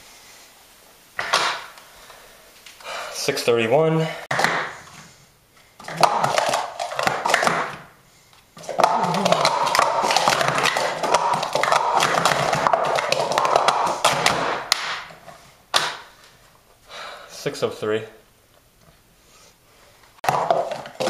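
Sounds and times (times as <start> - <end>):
plastic cups clattering: 5.8 - 7.9, 8.6 - 16.1, 20.2 - 21.0.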